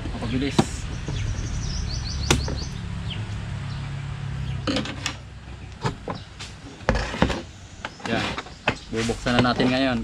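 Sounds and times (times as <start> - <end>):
low rumble: 0.0 - 5.8.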